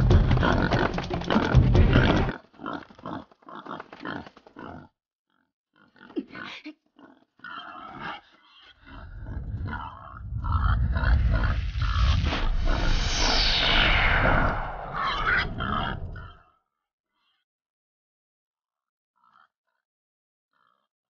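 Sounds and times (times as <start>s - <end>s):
animal-like grunts and growls: 0.0s - 12.8s
low rumbling: 8.8s - 16.3s.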